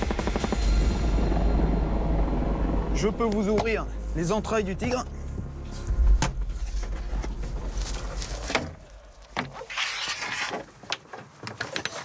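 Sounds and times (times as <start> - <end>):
low rumble: 0.0 - 9.4.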